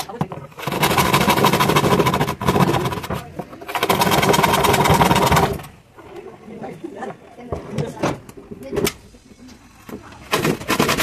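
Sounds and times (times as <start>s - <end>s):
hand saw cutting plywood: 0.6s - 5.6s, 10.3s - 11.0s.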